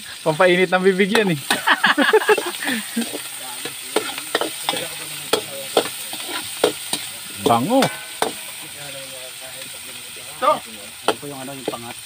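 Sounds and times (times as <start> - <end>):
vegetables sizzling: 0.0 - 12.0
metal spatula scraping a wok: 2.2 - 9.0.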